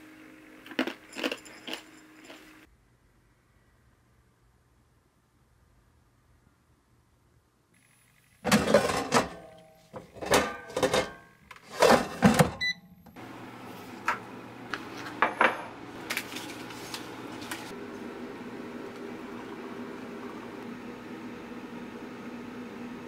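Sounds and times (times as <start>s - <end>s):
kitchenware clattering: 8.5s - 12.6s, 15.1s - 15.8s
electric kettle hissing: 17.1s - 23.0s.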